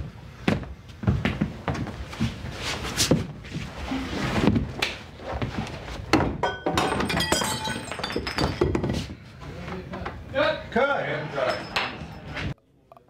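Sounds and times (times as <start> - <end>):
objects clattering: 6.1 - 9.2.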